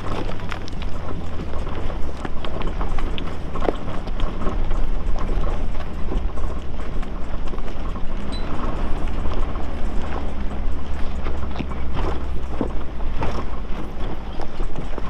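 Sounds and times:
rocks knocking under tyres: 0.0 - 8.0
engine running low: 0.0 - 15.0.

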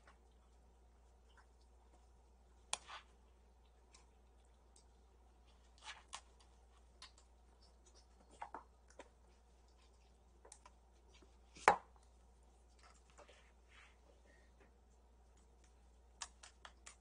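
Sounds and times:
kittens playing clicks and taps: 14.6 - 17.0.

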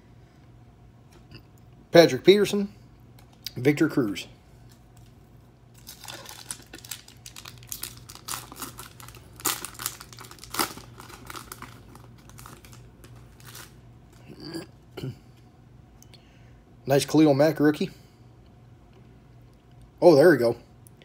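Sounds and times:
foil wrapper tearing and crinkling: 5.7 - 14.3.

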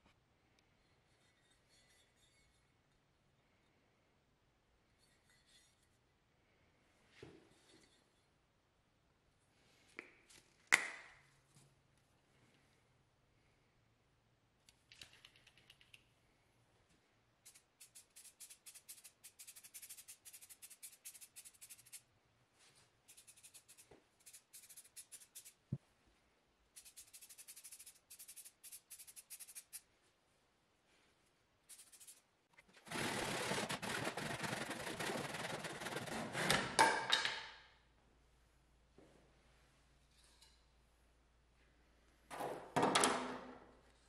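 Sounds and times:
spray can mixing ball rattling: 17.5 - 22.0, 23.1 - 25.7, 26.8 - 29.8, 31.7 - 36.3.

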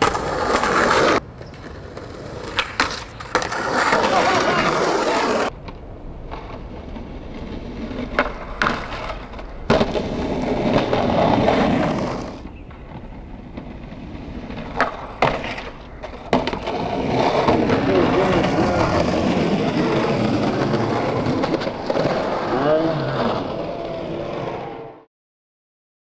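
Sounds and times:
skateboard popping and landing clacks: 0.0 - 22.5
skateboard wheels rolling on concrete: 0.0 - 25.1.

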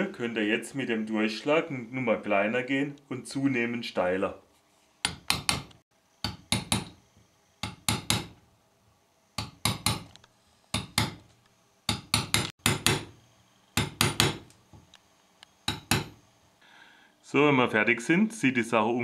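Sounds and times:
hammer tapping punch on metal: 5.0 - 7.0, 7.6 - 8.4, 9.4 - 10.1, 10.8 - 11.3, 11.9 - 13.2, 13.8 - 14.5, 15.7 - 16.2.

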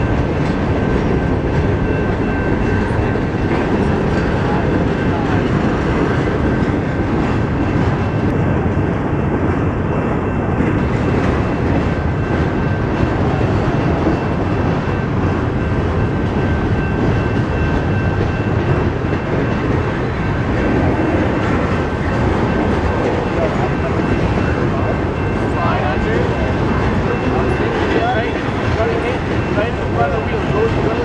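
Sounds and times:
train wheels rumbling on rail: 0.0 - 31.0.

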